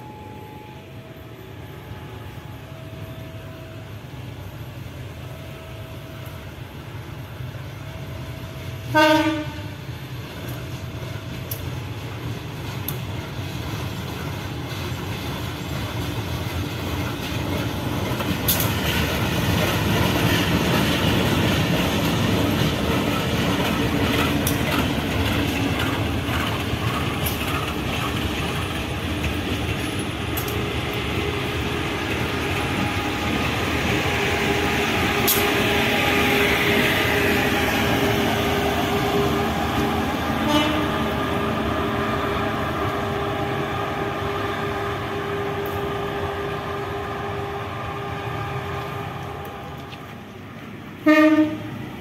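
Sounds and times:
train horn blast: 8.9 - 9.9, 40.4 - 41.2, 51.0 - 51.8
locomotive engine running: 10.0 - 51.7
wheels clacking over rails: 10.4 - 35.9.

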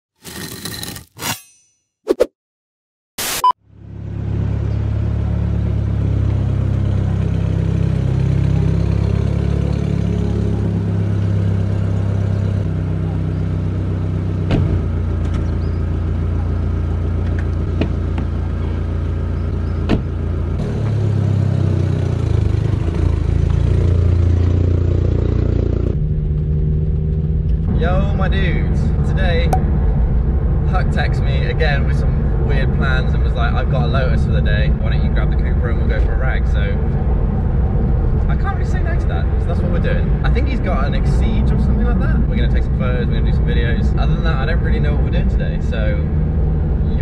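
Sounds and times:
static-like burst: 3.2 - 3.6.

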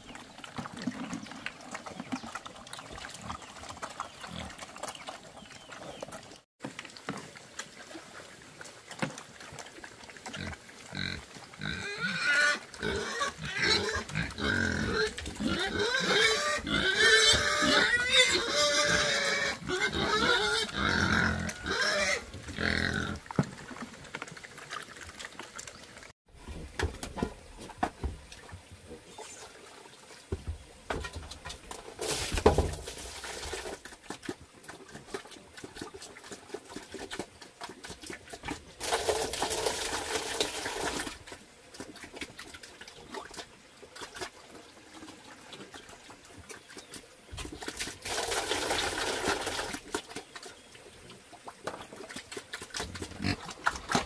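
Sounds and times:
pigs squealing and grunting: 10.3 - 23.3, 52.8 - 54.0.

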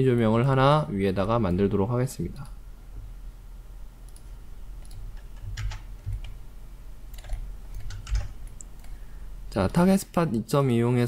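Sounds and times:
low steady hum: 0.0 - 11.0
computer mouse and keyboard clicks: 4.1 - 6.4, 7.1 - 9.0.

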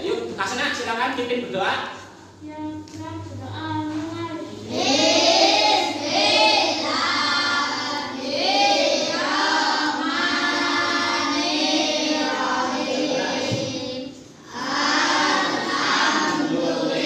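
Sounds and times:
children chanting in unison: 4.6 - 17.0.

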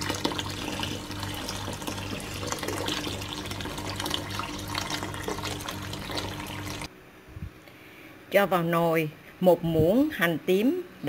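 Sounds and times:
liquid pouring into pot: 0.0 - 6.9.

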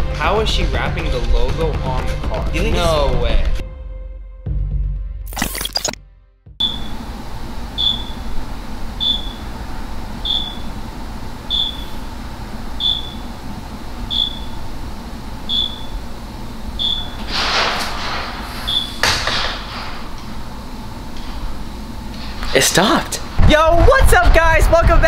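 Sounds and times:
electronic beeper chirping: 5.3 - 6.0, 6.6 - 7.0, 7.8 - 8.3, 9.0 - 9.5, 10.2 - 10.7, 11.5 - 12.1, 12.8 - 13.3, 14.1 - 14.7, 15.5 - 16.0, 16.8 - 17.2, 18.6 - 19.0
room hum: 6.6 - 25.0.

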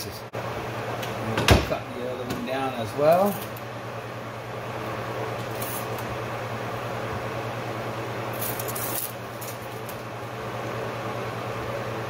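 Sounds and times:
workshop low hum: 0.0 - 12.0
tape measure blade rattling: 8.4 - 9.8.

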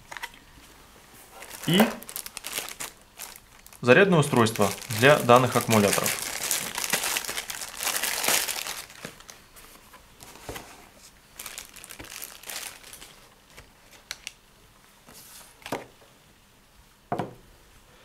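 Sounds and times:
plastic bag crinkling: 1.3 - 9.4, 11.4 - 14.4.

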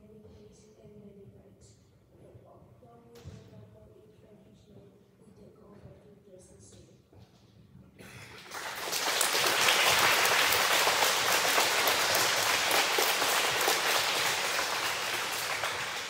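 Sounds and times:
crowd of children applauding: 8.1 - 16.0.

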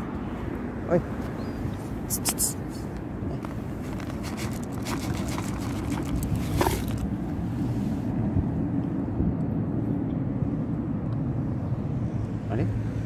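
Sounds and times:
low outdoor rumble: 0.0 - 12.7
kibble dropped on paving stones: 3.4 - 7.1.

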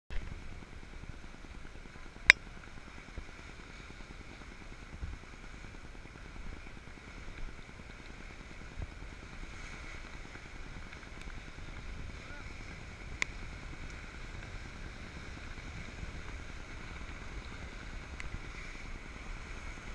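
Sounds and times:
surf washing around pilings: 0.2 - 19.9.

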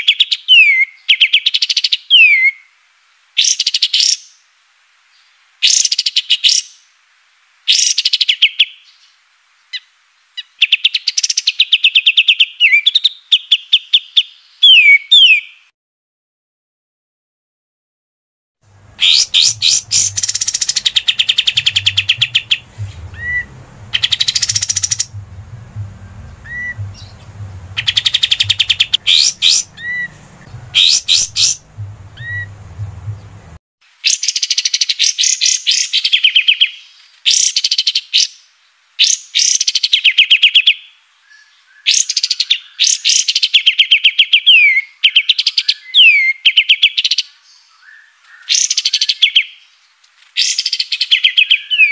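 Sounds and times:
low background hum: 18.7 - 33.6
songbird rattling trills: 18.8 - 33.6
rising whistled bird notes: 18.9 - 33.5.

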